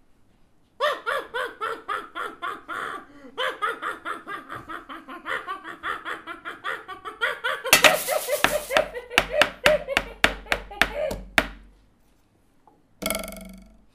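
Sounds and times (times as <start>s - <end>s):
person cackling laugh: 0.8s - 11.2s.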